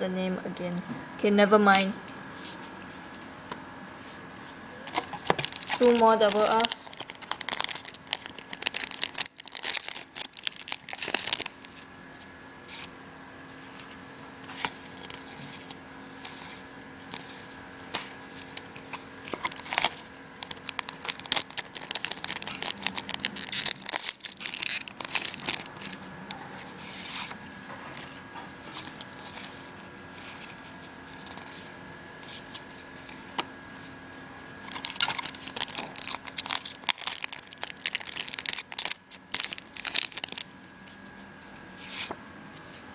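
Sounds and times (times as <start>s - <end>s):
faint steady hum: 0.0s - 42.9s
foil wrapper crinkling: 4.9s - 11.9s, 18.4s - 26.0s, 34.6s - 40.6s.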